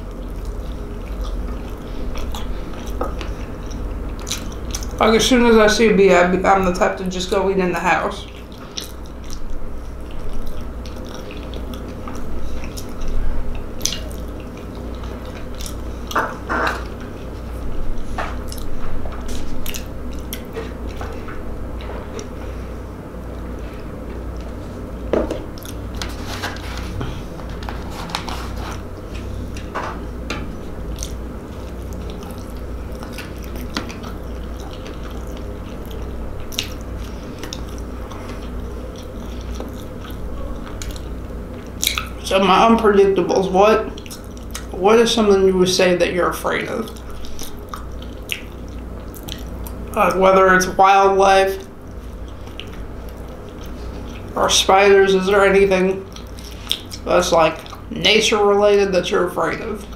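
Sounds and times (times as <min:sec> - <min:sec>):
biting and chewing food: 0:00.0 - 0:05.1, 0:08.2 - 0:42.2, 0:43.8 - 0:44.8, 0:46.4 - 0:50.2, 0:51.6 - 0:54.4, 0:56.0 - 0:57.9
wet mouth clicks: 0:13.8 - 0:15.8, 0:41.8 - 0:42.2, 0:47.0 - 0:49.8.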